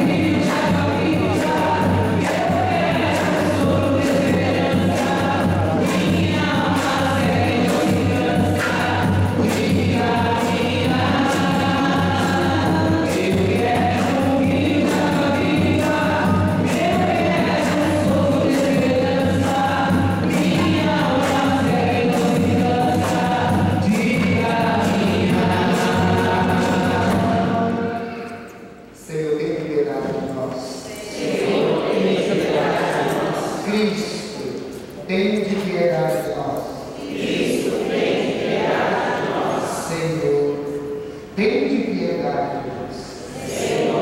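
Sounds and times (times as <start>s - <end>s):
percussion beat: 0.0s - 28.2s
choir singing a hymn: 0.0s - 28.8s, 30.0s - 34.4s, 36.8s - 41.0s, 42.5s - 44.0s.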